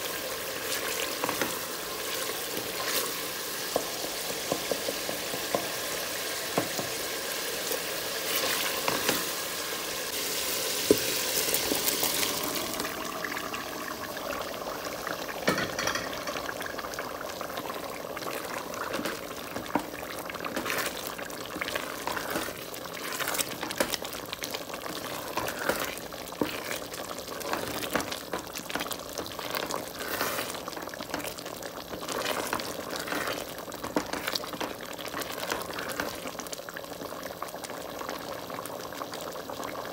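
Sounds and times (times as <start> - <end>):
food sizzling in a metal pot: 0.0 - 37.4
wooden spoon scraping a pot: 18.3 - 36.4.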